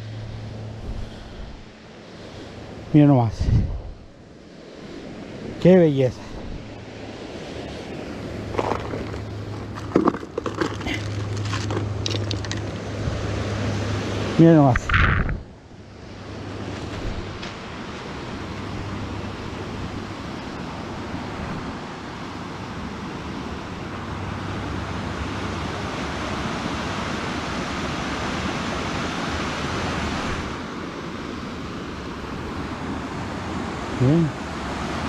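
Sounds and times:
river water rushing over rocks: 5.6s - 15.5s.

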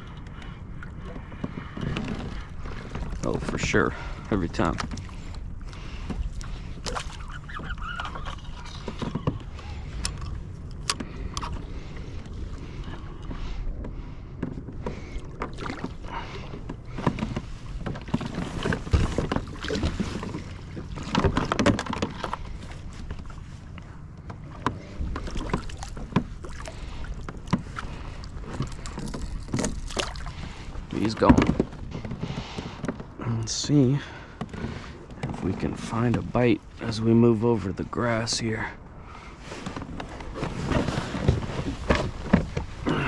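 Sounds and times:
water lapping against kayak hull: 0.0s - 43.0s
knocks and clicks of fishing gear: 0.2s - 3.6s, 8.6s - 23.2s, 23.8s - 33.2s.

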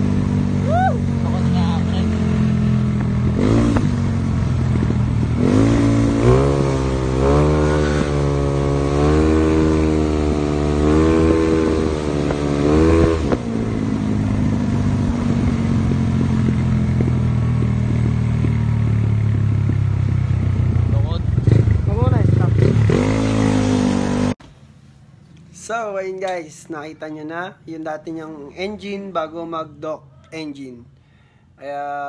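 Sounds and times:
scooter engine revving: 0.0s - 24.4s.

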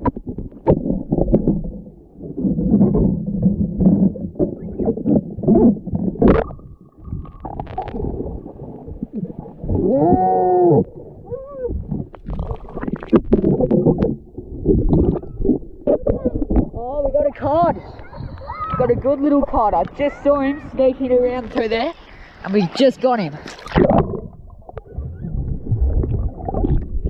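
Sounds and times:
water sloshing and bubbling: 0.0s - 27.0s.

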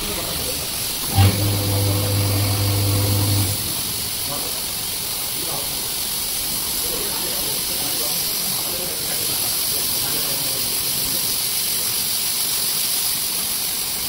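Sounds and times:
spray gun hissing: 0.0s - 14.0s.

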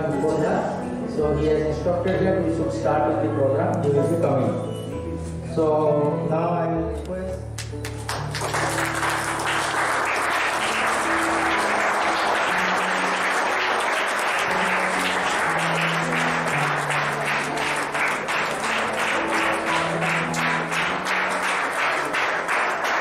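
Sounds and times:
instrumental music with held notes: 0.0s - 23.0s
applause: 7.6s - 23.0s.

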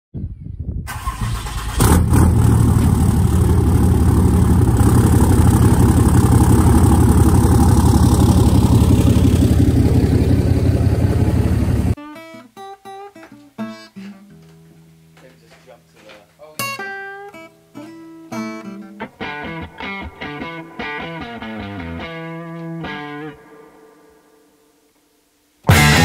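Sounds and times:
diesel engine starting and idling: 0.9s - 12.0s
acoustic guitar music: 11.9s - 24.8s, 25.6s - 26.0s.

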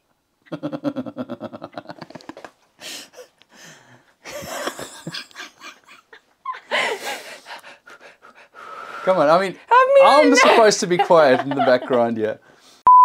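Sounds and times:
person laughing: 0.5s - 2.5s, 4.3s - 7.4s, 10.0s - 12.2s
wheezing gasping breaths: 2.8s - 4.2s, 6.6s - 9.7s.

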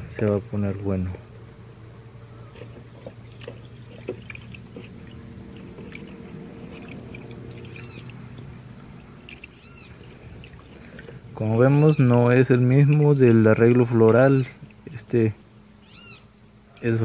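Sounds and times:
steady low hum: 0.0s - 17.0s
hand stirring water and gel: 2.4s - 15.5s
water splashes and drips: 2.9s - 11.3s, 11.9s - 15.0s.

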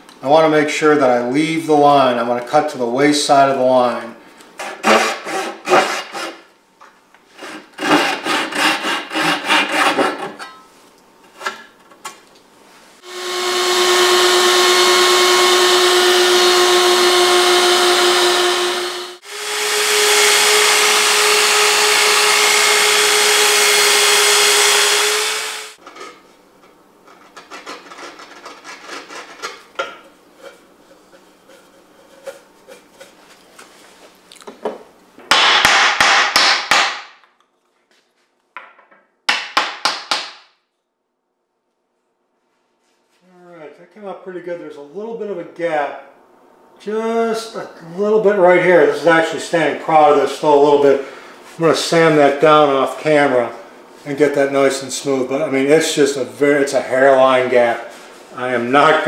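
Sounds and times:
handsaw cutting wood: 4.6s - 6.4s, 7.4s - 10.4s, 13.0s - 25.8s
miter saw whining: 13.0s - 25.8s.

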